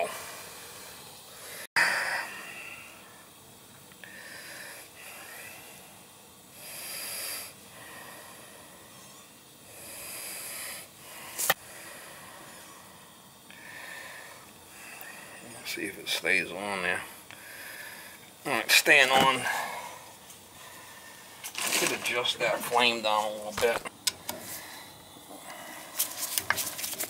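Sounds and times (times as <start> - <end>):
person breathing: 0.0 - 3.3, 4.0 - 6.0, 6.6 - 15.5, 17.2 - 18.3, 19.4 - 21.4, 24.4 - 26.3
faint steady hiss: 0.0 - 27.0.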